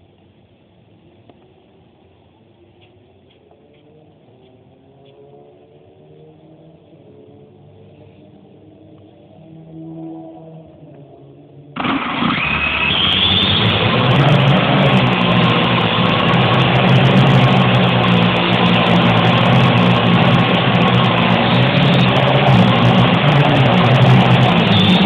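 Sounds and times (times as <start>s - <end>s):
drone motors whining: 12.7s - 25.0s.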